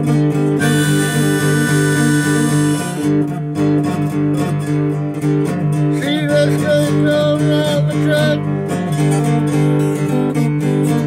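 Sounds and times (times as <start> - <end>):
harmonica bending notes: 0.0 - 4.6
acoustic guitar strumming: 0.0 - 11.0.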